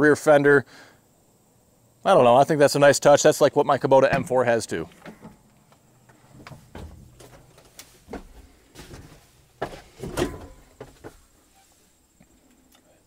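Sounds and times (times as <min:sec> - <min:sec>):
clicks knocks and shuffles climbing in: 0:04.9 - 0:11.4
tractor cab door opening: 0:06.1 - 0:11.2.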